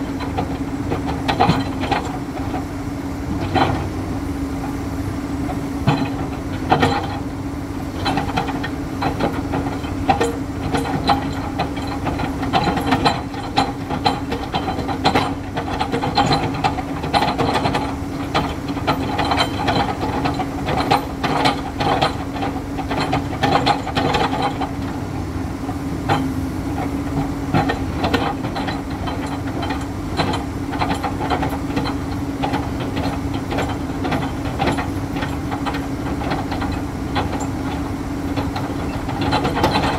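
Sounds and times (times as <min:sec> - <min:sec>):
excavator diesel engine running: 0:00.0 - 0:39.9
metallic knocks and clanks: 0:05.8 - 0:07.2, 0:08.0 - 0:24.9, 0:26.1 - 0:39.9.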